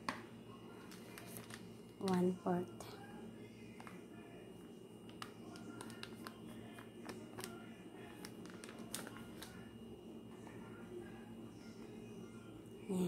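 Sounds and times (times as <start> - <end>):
plastic cup scooping powder: 5.1 - 9.6.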